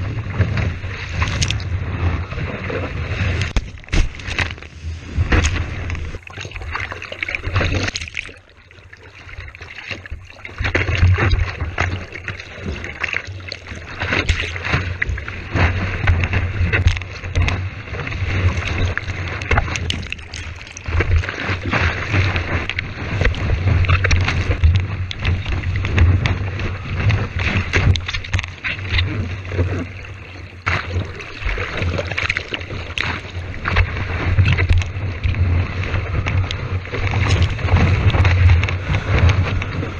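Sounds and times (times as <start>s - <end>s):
wind buffeting camera housing: 0.0s - 2.4s, 33.0s - 39.9s
whitewater rushing and splashing: 0.0s - 39.9s.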